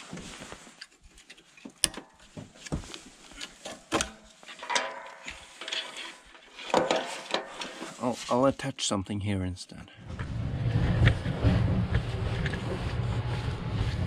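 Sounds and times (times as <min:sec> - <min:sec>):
metallic clicks and knocks: 0:03.4 - 0:07.7.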